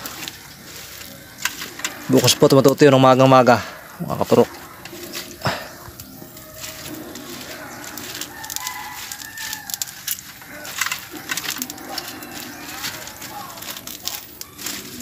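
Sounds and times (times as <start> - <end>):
sharp clicks and crackles: 0.0 - 15.0
rooster crowing: 4.4 - 15.0.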